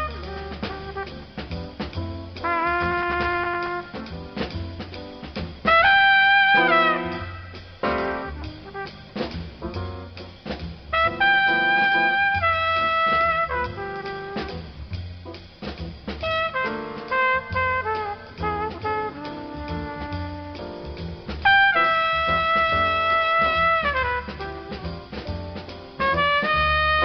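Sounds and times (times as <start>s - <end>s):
jazz music with horn: 0.0s - 27.0s.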